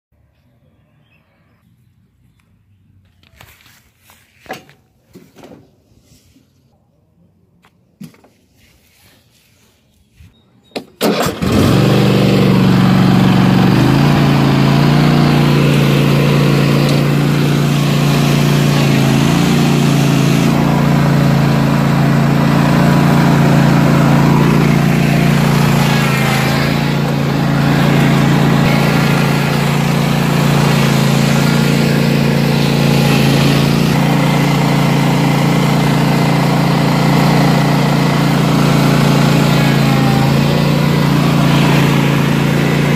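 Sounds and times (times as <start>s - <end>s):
lawn tractor engine cranking and running: 10.8s - 42.9s.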